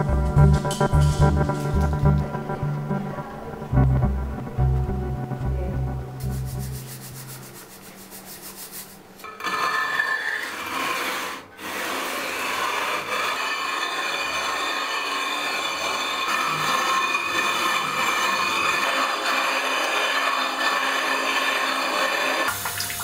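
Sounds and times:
music with low bass: 0:00.0 - 0:07.3
crayon scraping on stone: 0:06.2 - 0:18.9.

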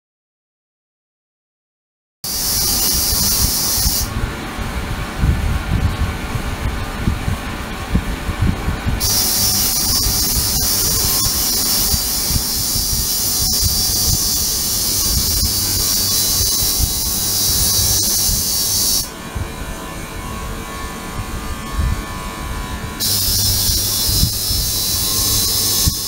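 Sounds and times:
ultrasonic cleaner high-pitched hiss: 0:02.3 - 0:04.1, 0:09.0 - 0:19.1, 0:23.0 - 0:26.0
low rumble: 0:04.1 - 0:26.0.

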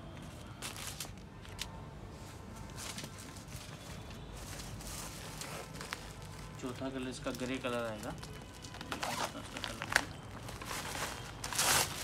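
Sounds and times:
paper and cloth rustling: 0:00.2 - 0:12.0.

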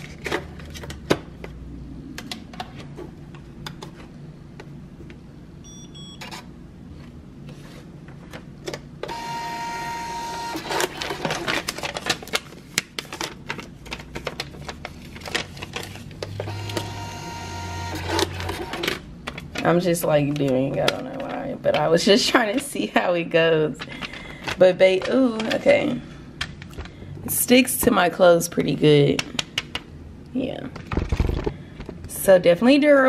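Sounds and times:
printer feed motor whirring: 0:09.0 - 0:11.5, 0:16.2 - 0:19.0.

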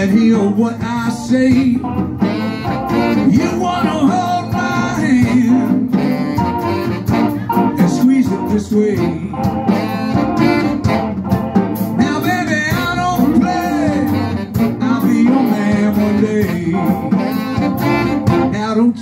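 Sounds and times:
drum kit: 0:00.0 - 0:18.7
bass guitar: 0:00.0 - 0:19.0
electric guitars: 0:00.0 - 0:19.0
saxophone: 0:01.2 - 0:19.0
person singing: 0:03.2 - 0:06.3, 0:07.4 - 0:09.8, 0:12.0 - 0:17.4.

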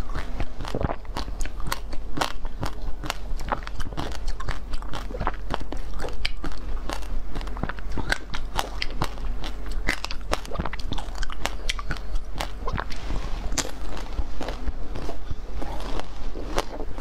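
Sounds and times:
ice crunching while chewed: 0:00.0 - 0:17.0.

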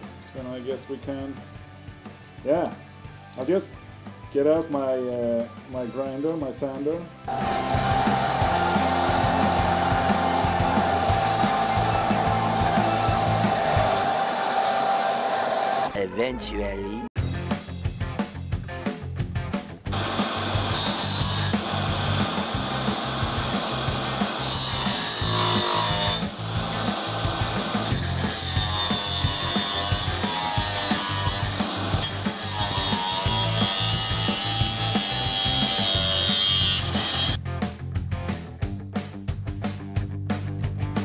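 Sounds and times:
angle grinder grinding steel: 0:07.3 - 0:15.9, 0:20.0 - 0:37.4.

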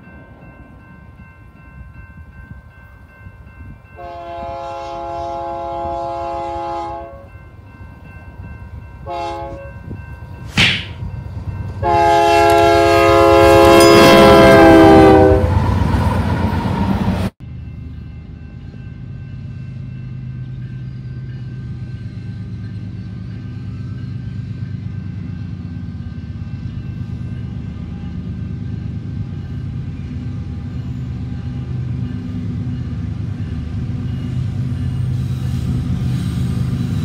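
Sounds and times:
train rumble: 0:00.0 - 0:37.0
train air horn blasts: 0:04.0 - 0:07.3, 0:09.0 - 0:09.8, 0:11.8 - 0:15.6
sharp thump: 0:10.5 - 0:11.0.

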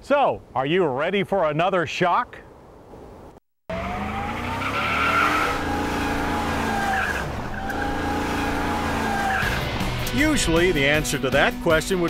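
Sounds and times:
tires squealing: 0:03.7 - 0:10.2
truck engine revving: 0:03.7 - 0:10.8.

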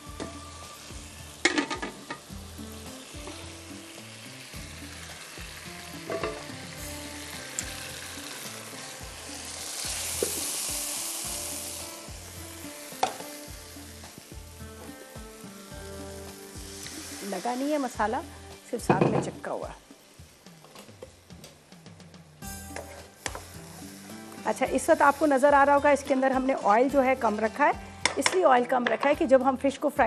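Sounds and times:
food sizzling in a wok: 0:00.0 - 0:30.0
utensil knocking on pan: 0:06.1 - 0:06.5, 0:13.0 - 0:13.2, 0:18.9 - 0:19.4, 0:28.0 - 0:29.2.

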